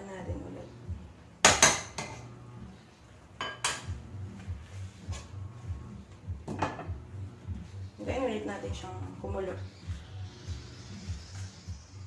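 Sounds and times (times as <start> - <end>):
metal utensils knocking on cookware: 1.4 - 2.2, 3.4 - 4.0.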